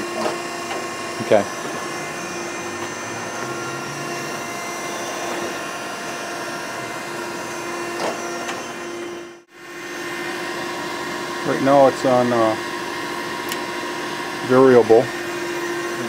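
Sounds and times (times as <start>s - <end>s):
surface grinder humming: 0.0s - 16.0s.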